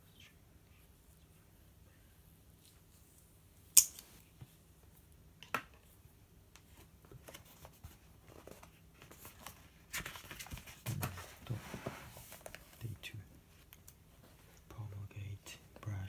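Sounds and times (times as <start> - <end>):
paper rustling: 6.7 - 12.8.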